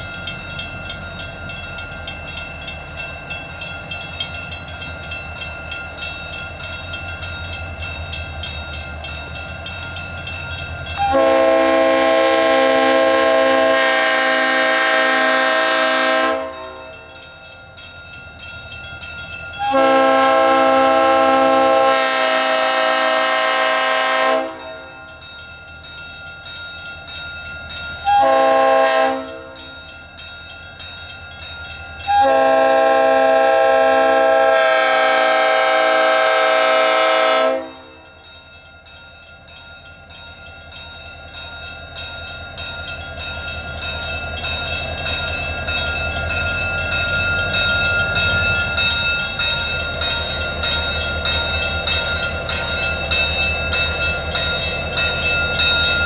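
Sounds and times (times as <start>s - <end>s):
locomotive air horn blasts: 11.0s - 16.8s, 19.6s - 24.7s, 28.1s - 29.6s, 32.1s - 37.9s.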